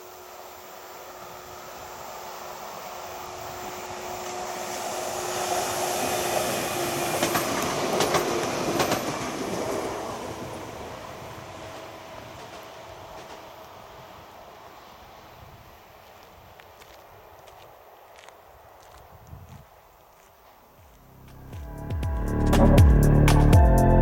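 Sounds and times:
electric train passing: 0.0 - 19.0, 20.9 - 24.0
wheel clacks on rails: 7.1 - 9.8.

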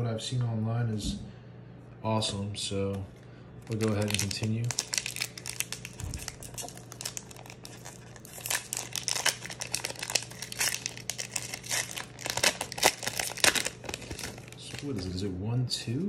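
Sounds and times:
foil wrapper tearing and crinkling: 3.6 - 15.2.

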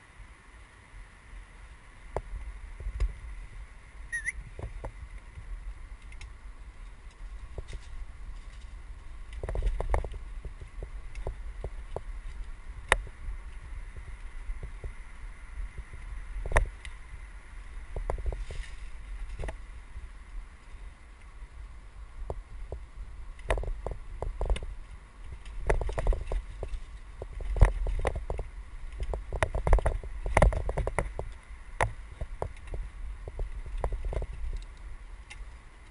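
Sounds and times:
bike rolling over dirt trail: 4.7 - 35.9
bike rattling clicks and knocks: 25.3 - 35.9.

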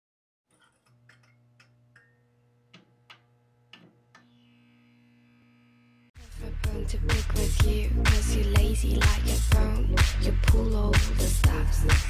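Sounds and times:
neon sign electrical hum: 0.6 - 7.0.

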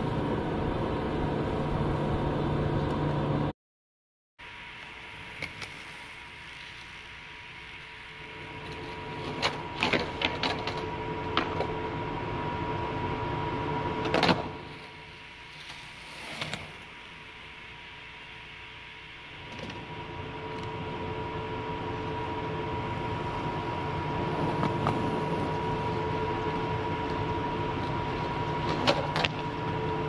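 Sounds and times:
skateboard wheels rolling on concrete: 0.0 - 3.5, 4.5 - 30.0
skateboard wooden clacks and scrapes: 8.6 - 11.7, 14.0 - 16.9, 24.3 - 25.5, 27.0 - 29.8.

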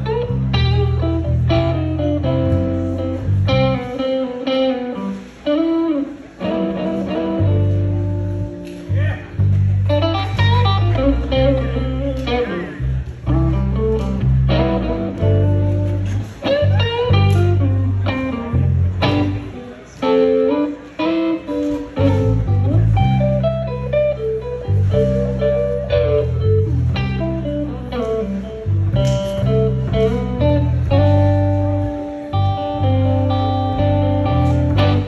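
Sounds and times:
electric guitar lead: 0.0 - 35.0
live blues band: 0.0 - 35.0.

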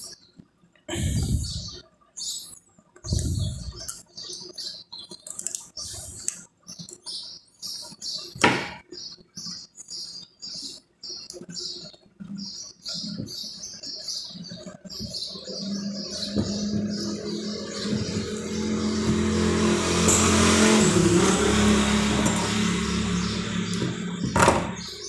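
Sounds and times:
stiff wire crinkling and clicking: 1.9 - 7.1
steady low hum: 14.9 - 25.0.

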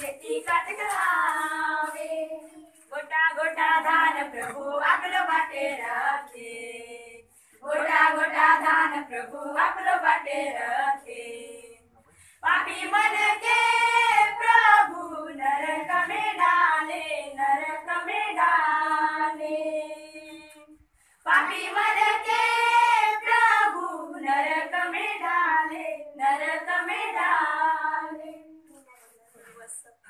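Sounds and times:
children and women singing: 0.0 - 28.7.

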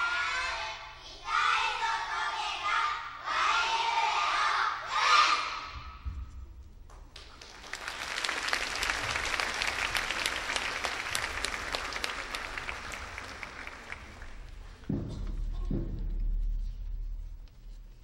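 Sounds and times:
audience applauding: 7.2 - 14.8.

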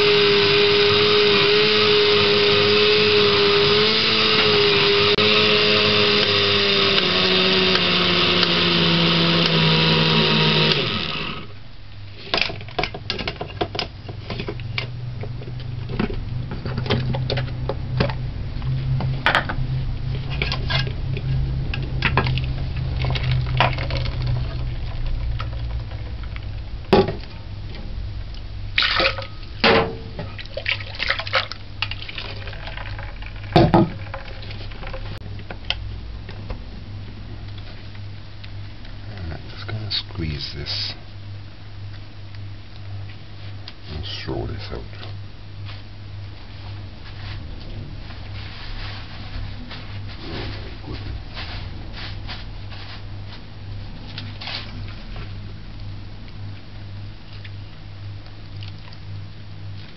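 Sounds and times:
electric blender: 0.0 - 11.6
liquid pouring into strainer: 30.3 - 35.0.

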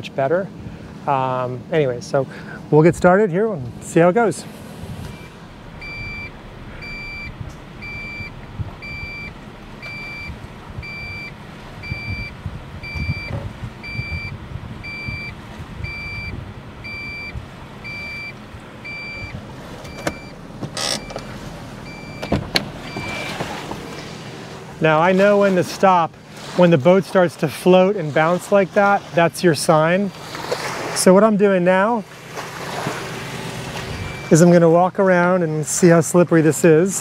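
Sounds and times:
engine rumble: 0.0 - 37.0
truck reverse warning beeping: 5.1 - 23.5, 33.9 - 34.6.

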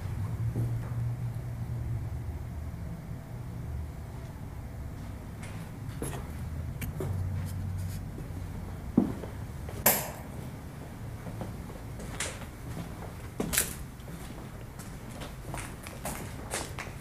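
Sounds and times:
low steady rumble: 0.0 - 15.4
footsteps and scuffs: 4.9 - 17.0.

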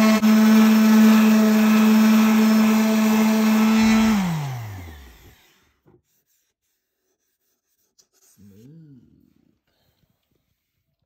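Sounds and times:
orbital sander on wood: 0.0 - 5.7.

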